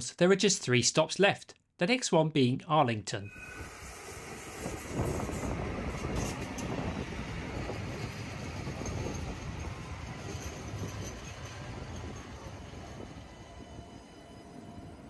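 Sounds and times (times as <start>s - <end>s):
tram running along track: 3.2s - 15.0s.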